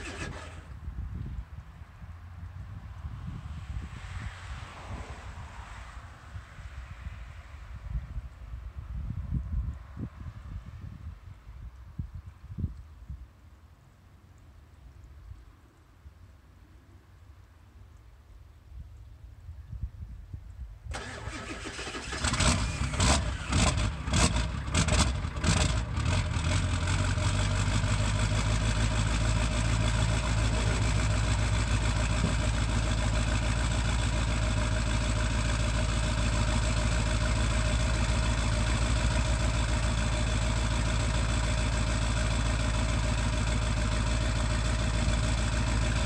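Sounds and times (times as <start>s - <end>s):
diesel engine starting and idling: 0.0s - 1.1s, 20.9s - 46.0s.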